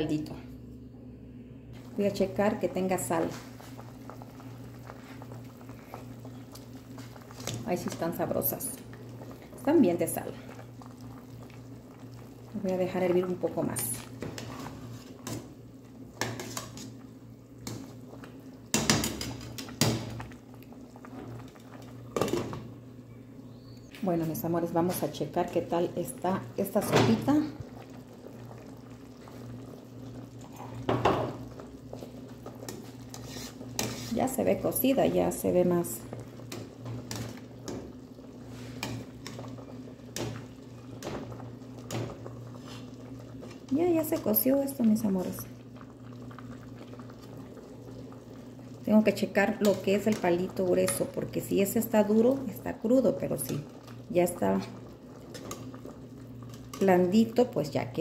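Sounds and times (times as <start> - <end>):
broth bubbling in a pot: 1.7 - 58.0
metal ladle scraping a pot: 33.1 - 34.2.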